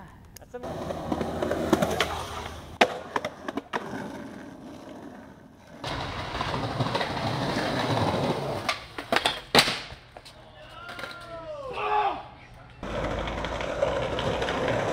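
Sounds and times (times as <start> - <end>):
wheels rolling over concrete: 0.6 - 11.3, 12.8 - 14.9
skateboard clacking: 5.8 - 10.3, 12.8 - 14.9.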